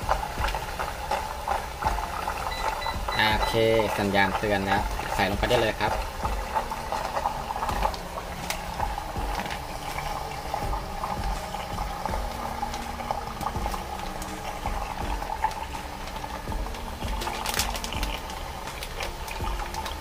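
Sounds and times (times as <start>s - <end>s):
pump churning water with hum: 0.0s - 20.0s
water splashing: 0.0s - 20.0s
plastic bag crinkling: 16.2s - 20.0s.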